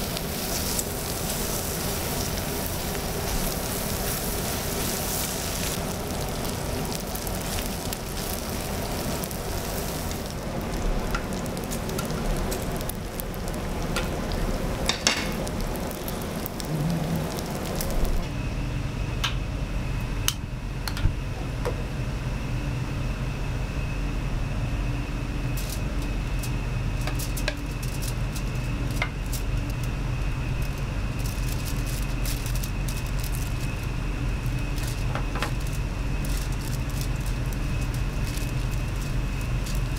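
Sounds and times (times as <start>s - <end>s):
meat sizzling on a griddle: 0.0s - 18.2s, 25.5s - 39.9s
low kitchen hum: 0.0s - 39.9s.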